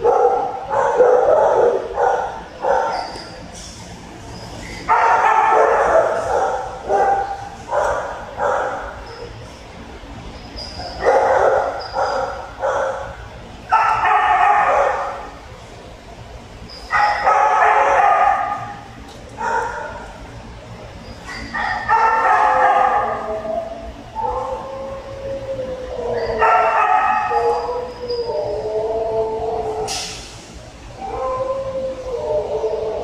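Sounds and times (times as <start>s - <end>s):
dogs barking: 0.0s - 3.4s, 4.6s - 9.3s, 10.7s - 15.5s, 16.8s - 20.3s, 21.1s - 30.2s.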